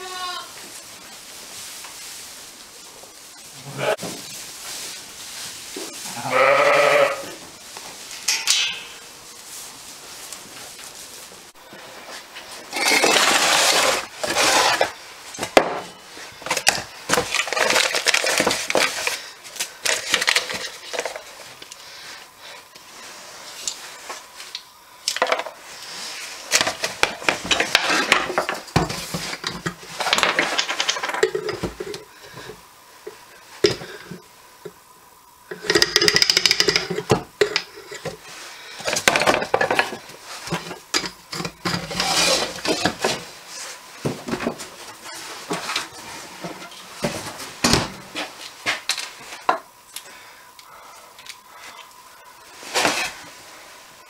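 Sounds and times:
plastic and metal objects handled: 16.5s - 21.4s.

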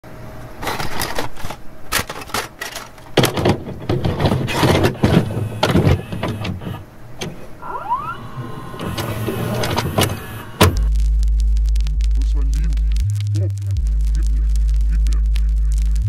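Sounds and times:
tape mechanism clicking and clunking: 0.6s - 10.9s
short rising whine: 7.4s - 11.2s
low rumble: 8.2s - 16.0s.

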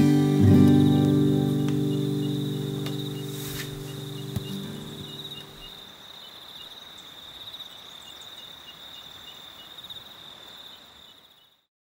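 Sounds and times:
guitar chord: 0.0s - 5.0s
insects chirping: 0.0s - 11.7s
insects trilling: 0.4s - 11.7s.

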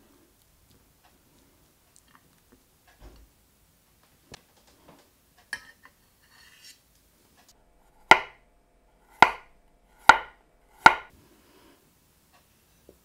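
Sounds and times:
knife striking chopping board: 8.0s - 8.4s, 9.1s - 11.1s.

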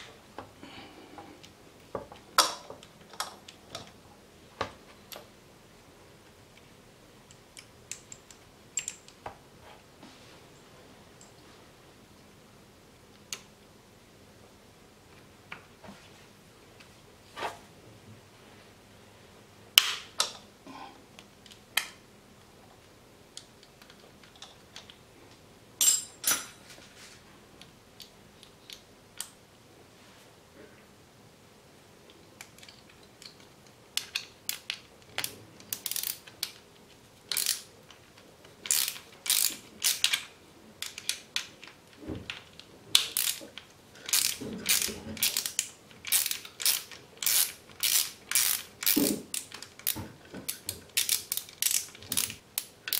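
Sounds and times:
socket ratchet clicking: 34.0s - 36.6s, 37.3s - 37.7s, 38.6s - 41.2s, 43.0s - 43.4s, 44.1s - 52.9s.

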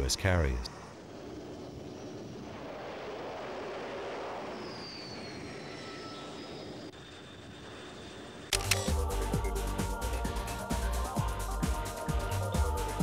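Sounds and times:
faint high whine: 0.0s - 8.8s
jet engines rushing: 0.0s - 13.0s.

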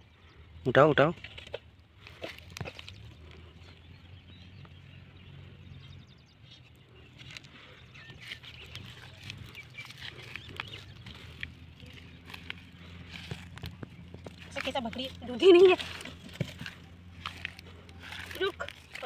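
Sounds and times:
goat shifting and snuffling: 1.2s - 4.0s, 7.1s - 19.0s
steady low rumble: 1.7s - 19.0s.

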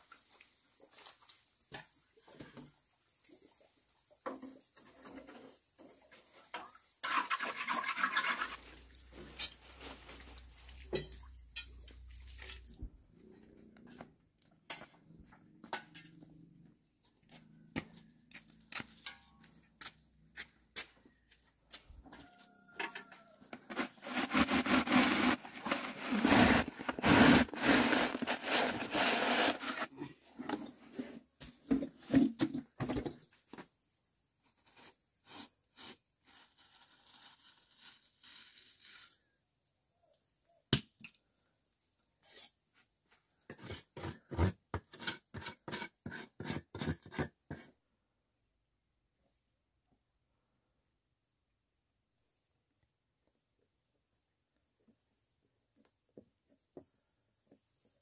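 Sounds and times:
bucket grinding against wet cement: 7.0s - 8.8s, 23.6s - 30.0s.

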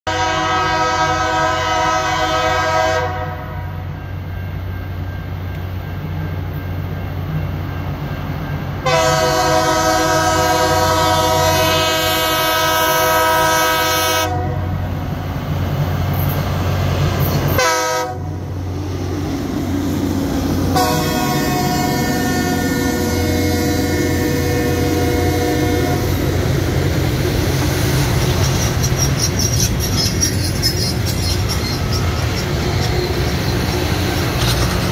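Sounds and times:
train air horn blasts: 0.1s - 3.9s, 8.8s - 14.8s, 17.5s - 18.4s, 20.7s - 26.4s
train wheels rolling past: 0.1s - 34.9s.

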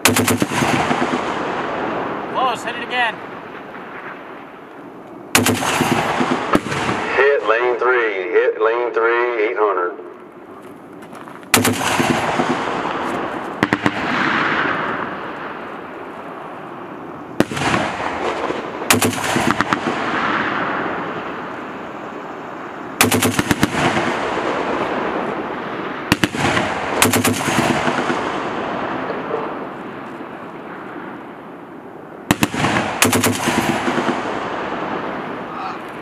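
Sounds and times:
machine gun firing bursts: 0.0s - 1.4s, 5.4s - 7.1s, 11.5s - 12.8s, 17.5s - 20.1s, 23.0s - 24.6s, 26.1s - 28.3s, 32.3s - 34.4s
rolling echo: 0.0s - 36.0s.

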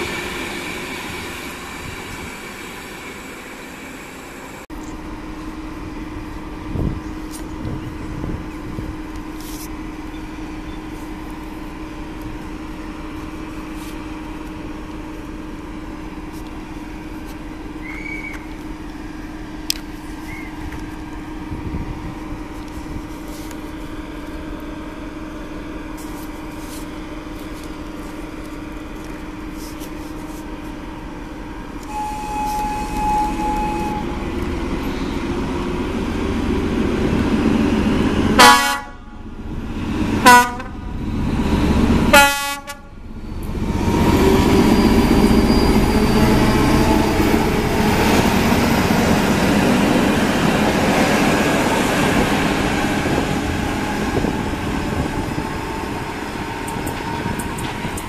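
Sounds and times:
diesel locomotive engine: 0.0s - 58.0s
train horn blasts: 31.8s - 35.2s, 38.4s - 39.2s, 40.2s - 40.8s, 42.1s - 42.9s.

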